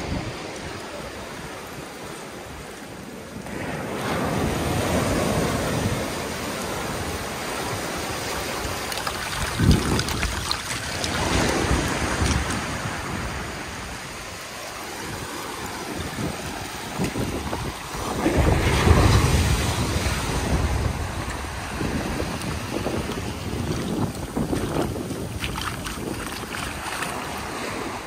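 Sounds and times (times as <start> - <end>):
small waves washing in: 0.0 - 28.0
seashells clicking and rattling: 8.6 - 12.6.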